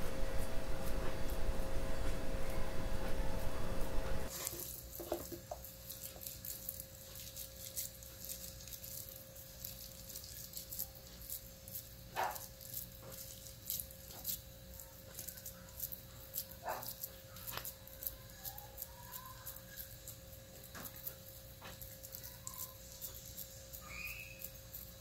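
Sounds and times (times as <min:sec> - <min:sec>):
faint steady hum: 0:00.0 - 0:25.0
meat frying in oil: 0:04.3 - 0:16.8.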